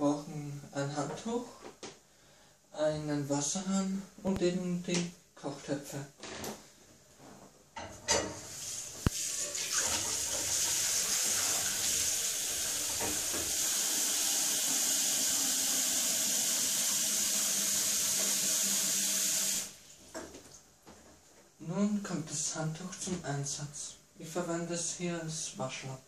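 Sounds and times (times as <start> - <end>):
tap water running into a pot: 8.3 - 19.7.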